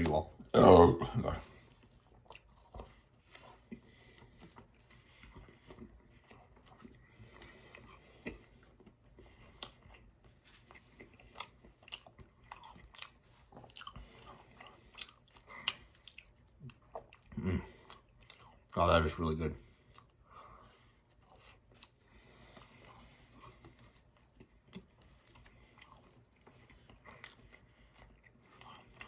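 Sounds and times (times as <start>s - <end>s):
man chewing food: 0.0s - 29.0s.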